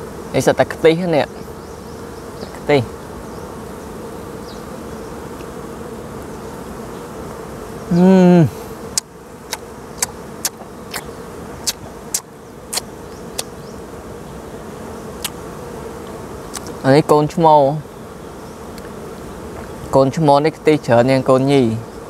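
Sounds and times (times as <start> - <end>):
bees buzzing: 0.0 - 22.0
hummed vocal sound: 7.8 - 9.0
sharp clicks while chewing: 8.9 - 13.5, 16.5 - 16.7.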